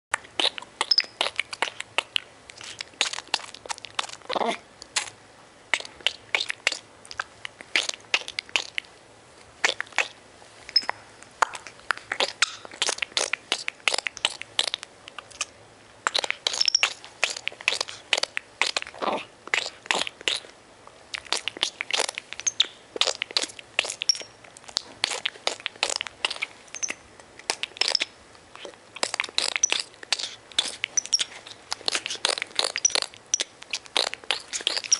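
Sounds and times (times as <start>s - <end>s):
monkey mouth clicking and smacking: 0.2s - 9.0s, 9.6s - 20.5s, 21.1s - 34.9s
monkey high squeaks: 0.4s - 1.4s, 10.7s - 11.0s, 16.1s - 18.8s, 21.6s - 24.4s, 25.0s - 27.0s, 27.8s - 28.1s, 29.0s - 34.9s.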